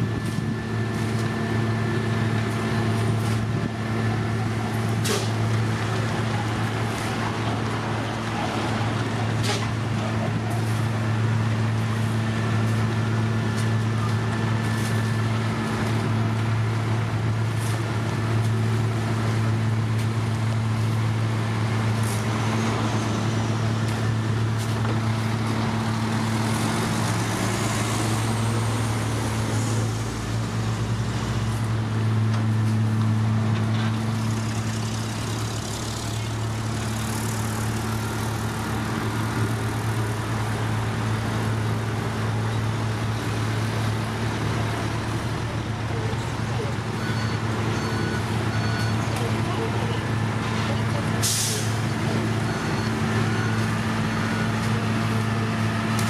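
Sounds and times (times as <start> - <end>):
heavy diesel engines running: 0.0 - 56.0.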